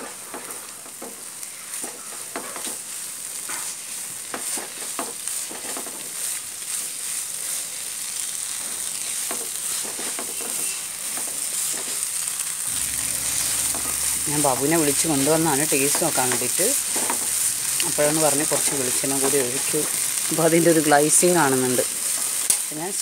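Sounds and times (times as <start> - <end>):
meat sizzling in oil: 0.0 - 23.0
spatula scraping and tapping pan: 4.3 - 6.1, 9.2 - 12.0.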